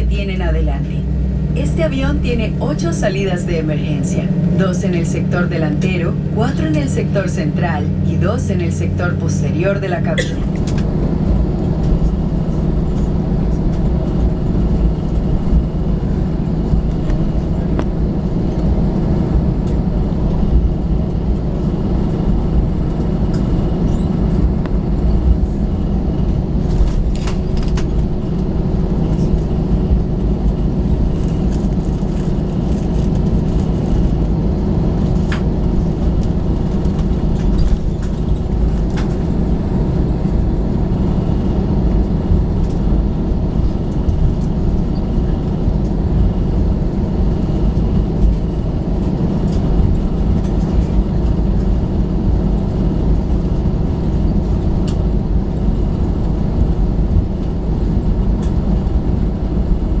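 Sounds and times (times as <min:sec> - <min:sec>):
airplane cabin engine rumble: 0:00.0 - 1:00.0.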